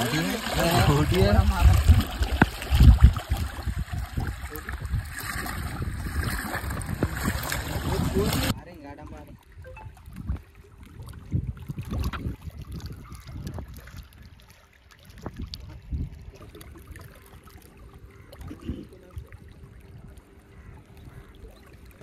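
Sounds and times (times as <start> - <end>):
waves splashing against rocks: 0.0 - 8.6
wind gusts on microphone: 0.8 - 8.5, 9.8 - 14.0.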